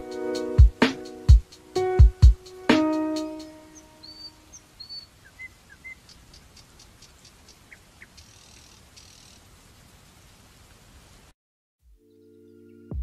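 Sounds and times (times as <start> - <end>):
electronic music chord: 0.0 - 4.0
faint electronic chirps and ticks: 3.7 - 9.5.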